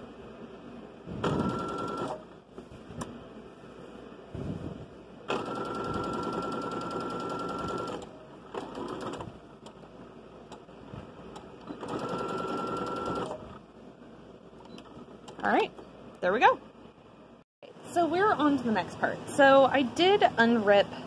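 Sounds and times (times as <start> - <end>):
sewing machine stitching: 5.3 - 9.3, 11.6 - 13.4.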